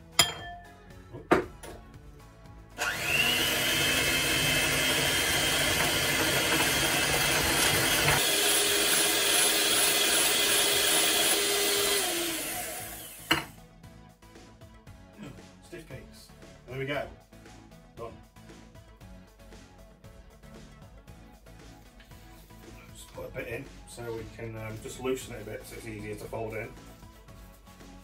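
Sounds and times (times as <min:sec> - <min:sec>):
electric hand mixer whisking: 0:02.8 - 0:13.6.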